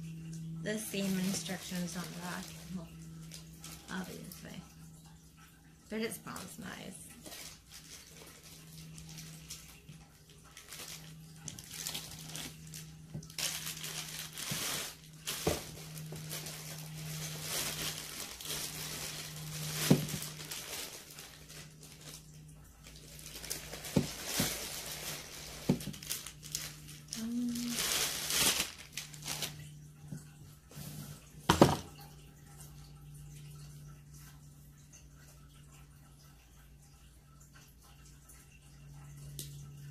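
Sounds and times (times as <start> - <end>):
steady low hum: 0.0 - 39.9
plastic packaging crinkling: 0.4 - 4.6, 6.2 - 29.9.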